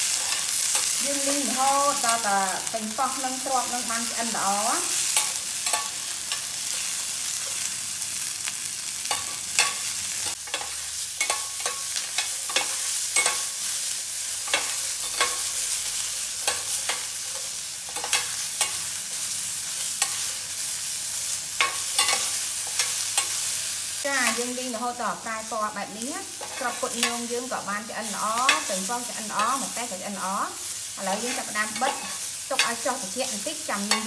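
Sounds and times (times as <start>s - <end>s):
food sizzling in pan: 0.0s - 34.0s
metal ladle scraping pan: 31.1s - 32.7s.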